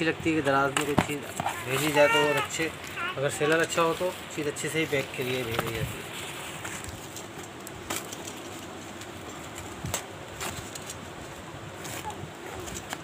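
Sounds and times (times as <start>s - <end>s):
steady background hiss: 0.0s - 13.0s
cardboard snapping and crackling: 6.7s - 11.0s.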